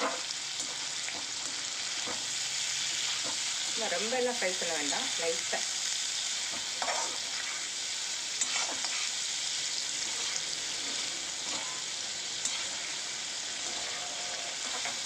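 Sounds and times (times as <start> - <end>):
cheese sizzling in hot oil: 0.0 - 15.0
metal spatula scraping pan: 6.5 - 7.7, 8.4 - 9.2, 10.0 - 15.0.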